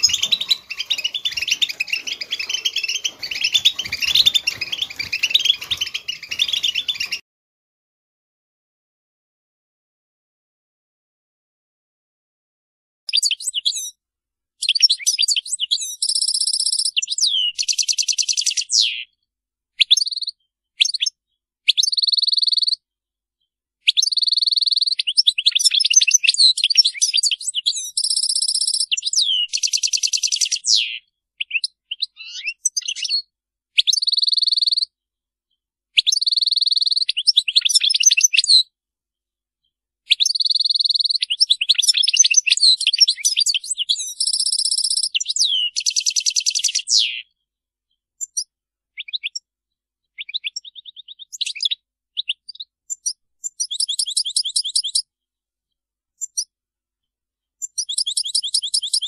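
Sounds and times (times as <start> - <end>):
goldfinch singing: 0.0 - 7.2, 13.1 - 14.0, 14.6 - 19.1, 21.7 - 22.8, 23.9 - 34.9, 36.0 - 38.6, 40.1 - 47.3, 48.2 - 49.4, 50.1 - 55.0, 57.6 - 59.0.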